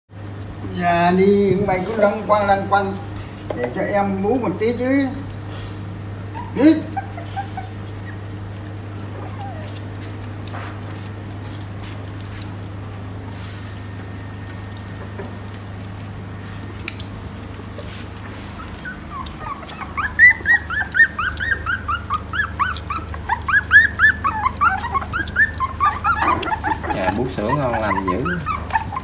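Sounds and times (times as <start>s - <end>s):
steady low hum: 0.2s - 29.0s
puppies whimpering and squealing: 6.0s - 13.0s, 16.7s - 29.0s.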